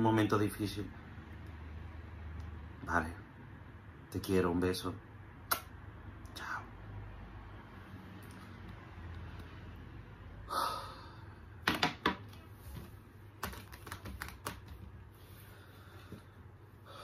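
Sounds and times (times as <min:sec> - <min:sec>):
short breath: 0:15.4 - 0:17.0.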